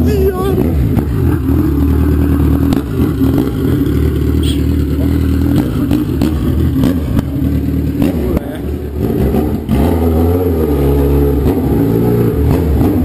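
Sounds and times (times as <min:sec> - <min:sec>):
motorcycle engine idling loud: 0:00.0 - 0:09.7
exhaust crackles: 0:00.0 - 0:10.7.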